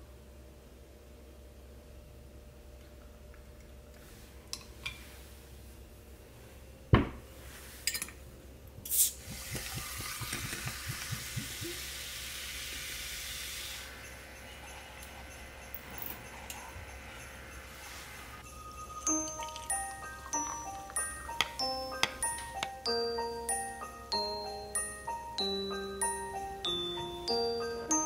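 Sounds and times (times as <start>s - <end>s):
gas hissing from bottle: 8.8s - 16.1s
carbonated water pouring and fizzing: 8.9s - 13.9s.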